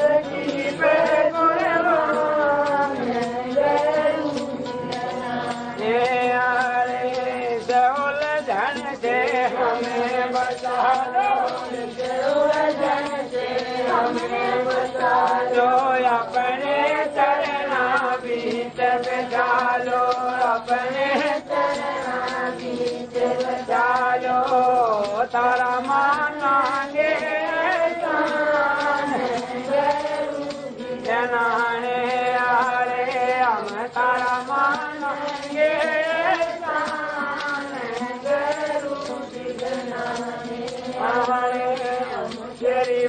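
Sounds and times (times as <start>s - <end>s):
man singing devotional song: 0.0s - 43.0s
musical accompaniment: 0.0s - 43.0s.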